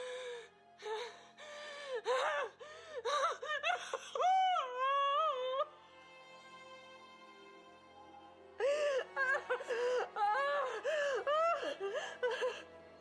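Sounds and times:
soft background music: 0.0s - 13.0s
woman sobbing and wailing: 0.8s - 5.8s, 8.6s - 12.8s.

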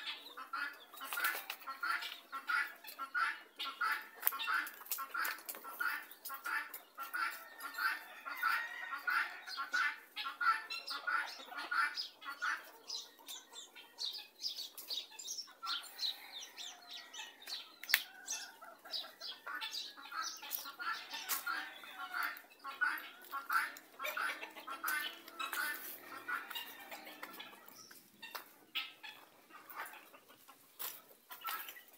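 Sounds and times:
chickens clucking: 0.0s - 31.9s
sharp clicks and crunches: 4.2s - 7.3s.

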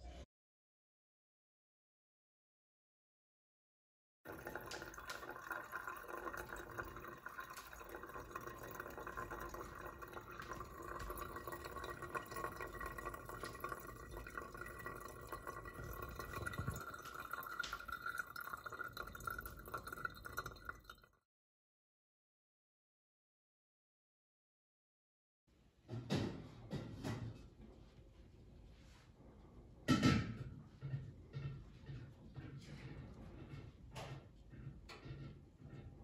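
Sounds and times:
water trickling through filter: 4.3s - 21.2s.

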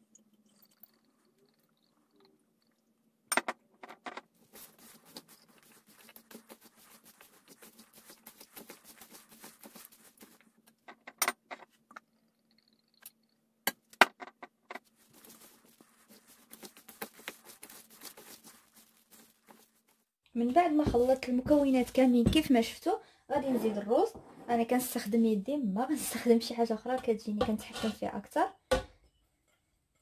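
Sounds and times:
hands mixing wet stuffing: 4.3s - 10.8s, 14.8s - 22.7s.

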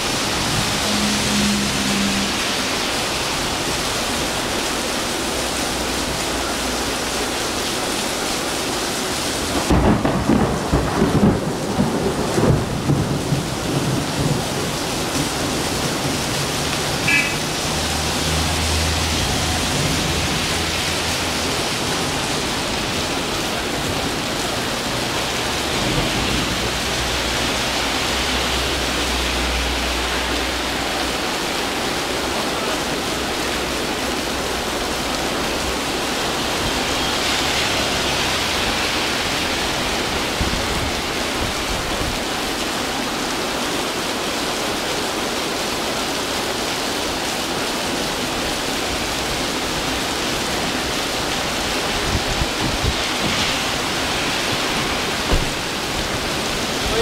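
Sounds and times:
cars passing on wet road: 0.0s - 57.0s
heavy rain pouring: 0.0s - 57.0s
rolling thunder rumble: 9.6s - 27.4s.

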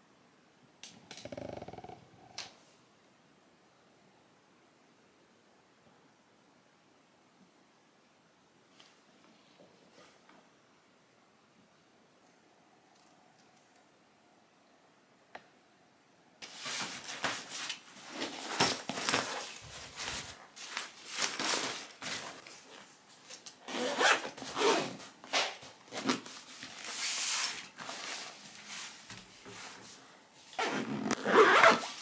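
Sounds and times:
bags rustling: 16.4s - 25.2s
zippers being pulled: 23.7s - 25.0s, 30.6s - 32.0s.

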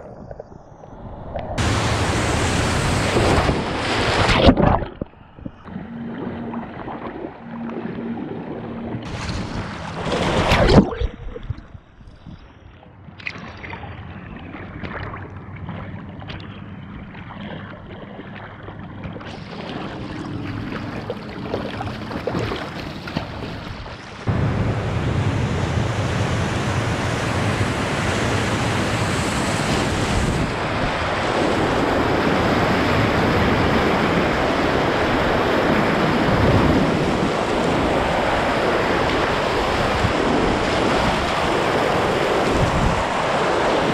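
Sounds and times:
water splashes: 0.0s - 43.9s
river water rushing: 1.6s - 4.3s, 19.4s - 43.9s.

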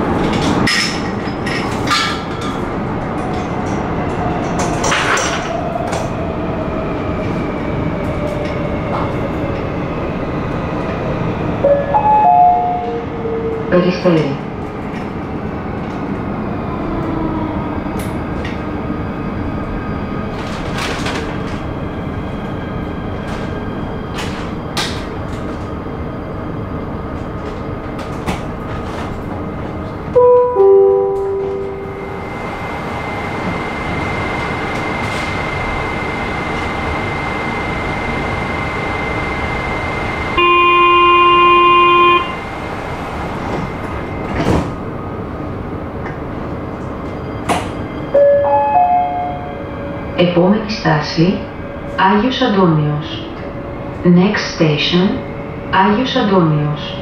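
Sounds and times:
metro train hum and rumble: 0.0s - 57.0s
electronic warning tone: 40.4s - 42.4s.

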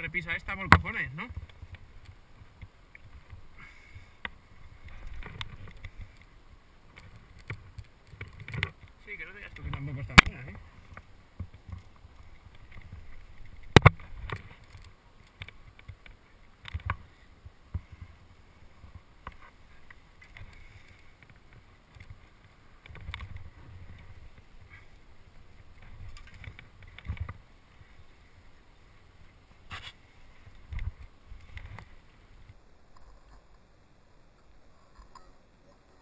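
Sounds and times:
scuffs and clicks on rock: 29.6s - 32.0s
wind rumble on microphone: 30.4s - 32.6s.

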